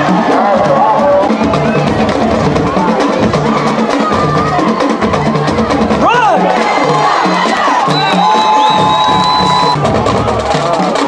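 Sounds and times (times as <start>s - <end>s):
drumline playing driving beat: 0.0s - 11.0s
rising and falling call: 7.9s - 9.8s.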